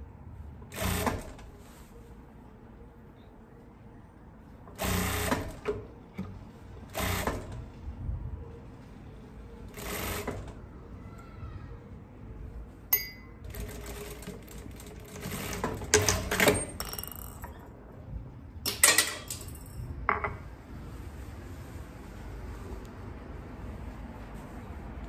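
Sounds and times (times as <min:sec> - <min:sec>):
sewing machine stitching: 0:00.7 - 0:01.4, 0:04.8 - 0:05.6, 0:06.9 - 0:07.5, 0:09.8 - 0:10.5.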